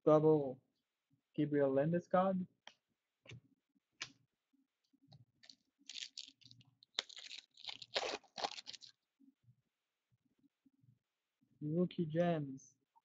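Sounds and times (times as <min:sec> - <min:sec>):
foil wrapper tearing and crinkling: 0:05.4 - 0:08.9.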